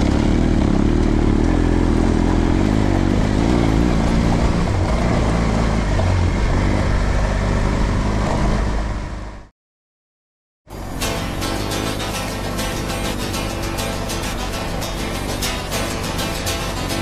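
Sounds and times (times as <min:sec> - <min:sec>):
motorcycle engine running: 0:00.0 - 0:09.5, 0:10.7 - 0:17.0
steady rushing noise: 0:10.7 - 0:17.0
music: 0:10.8 - 0:17.0.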